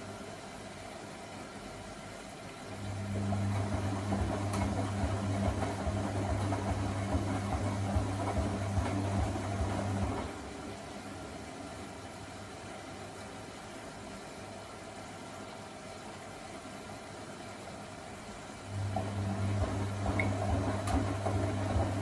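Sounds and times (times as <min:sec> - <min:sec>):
washing machine motor humming: 0:02.7 - 0:12.6, 0:18.5 - 0:22.0
water sloshing in drum: 0:03.2 - 0:10.7.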